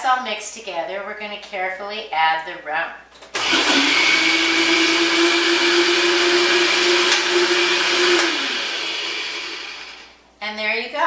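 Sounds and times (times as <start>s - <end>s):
blender motor humming: 3.4s - 10.2s.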